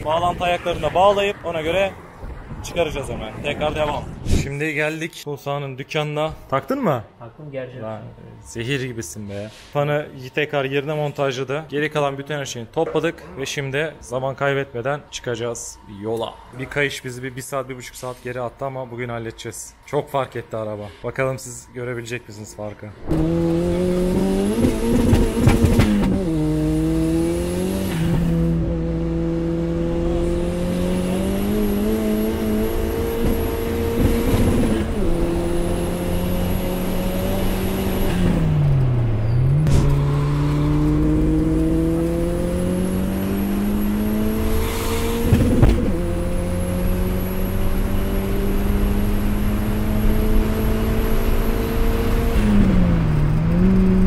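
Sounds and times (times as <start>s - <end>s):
car engine revving through gears: 23.0s - 54.0s.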